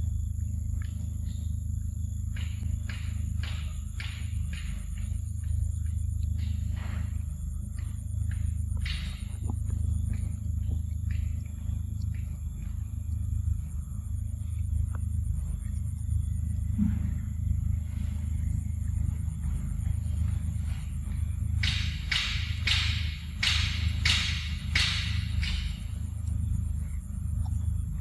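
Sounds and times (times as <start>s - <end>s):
steady low rumble: 0.0s - 28.0s
monkey chewing and smacking: 0.2s - 16.8s.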